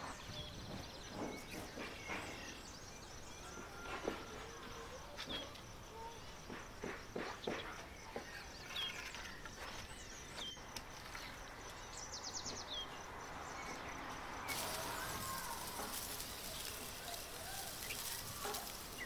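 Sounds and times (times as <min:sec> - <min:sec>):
small birds chirping: 0:00.0 - 0:19.0
loud steady hiss: 0:14.4 - 0:19.0.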